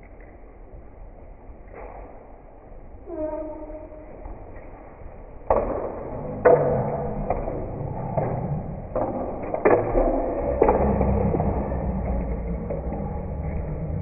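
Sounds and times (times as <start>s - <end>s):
sharp knocks and thuds echoing: 5.4s - 13.1s.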